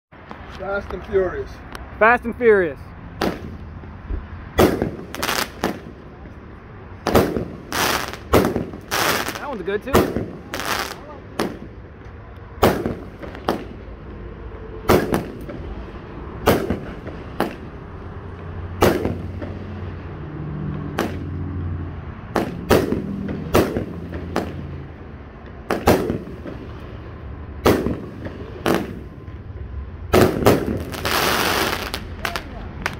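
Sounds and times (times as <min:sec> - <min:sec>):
fireworks bangs: 0:03.2 - 0:03.6, 0:04.5 - 0:06.4, 0:07.0 - 0:11.8, 0:12.6 - 0:14.2, 0:14.8 - 0:18.0, 0:18.7 - 0:20.0, 0:20.9 - 0:21.3, 0:22.3 - 0:24.9, 0:25.6 - 0:27.0, 0:27.6 - 0:29.4, 0:30.1 - 0:32.9
loud firework burst with hiss: 0:04.6 - 0:05.9, 0:07.1 - 0:11.7, 0:16.4 - 0:17.7, 0:18.8 - 0:19.6, 0:27.6 - 0:29.1, 0:30.1 - 0:32.9.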